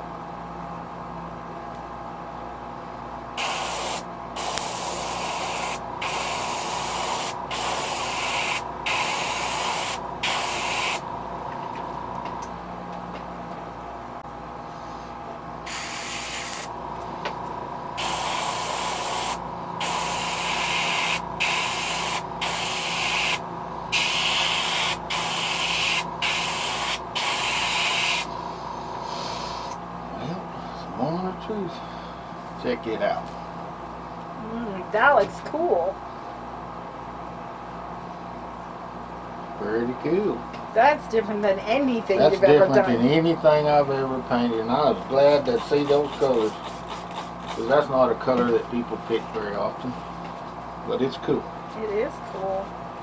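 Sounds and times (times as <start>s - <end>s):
airbrush hissing: 3.4s - 11.0s, 15.7s - 16.7s, 18.0s - 28.3s, 29.0s - 29.8s, 45.6s - 47.6s.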